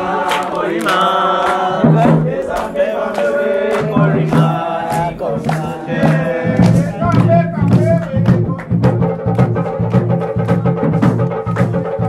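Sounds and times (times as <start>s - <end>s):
group of voices chanting: 0.0s - 8.3s
percussive strikes: 0.0s - 12.0s.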